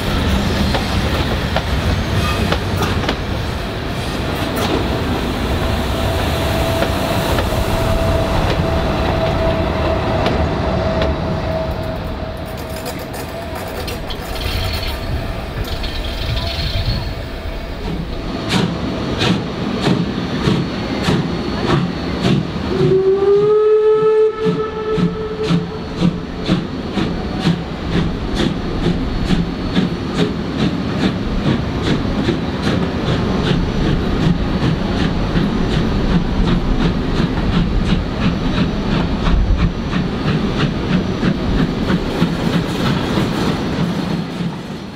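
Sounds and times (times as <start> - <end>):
train wheels clicking: 0.0 - 23.6, 24.4 - 44.9
train rumbling past: 0.0 - 44.9
steam whistle: 22.6 - 26.2.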